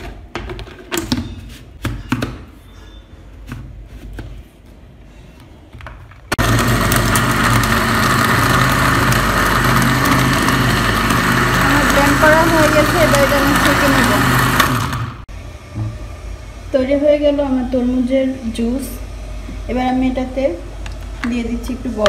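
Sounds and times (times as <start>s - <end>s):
blender motor running: 6.4s - 15.9s.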